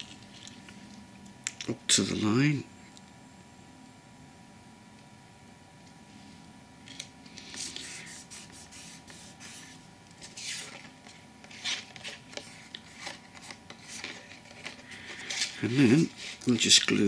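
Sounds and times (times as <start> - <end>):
card sheets rubbing and rustling: 6.9 - 17.0.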